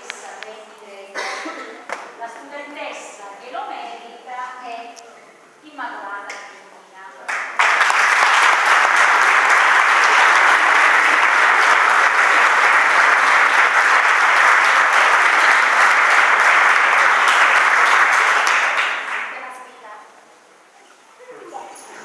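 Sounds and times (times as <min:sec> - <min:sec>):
audience applause: 0:07.3 - 0:19.4.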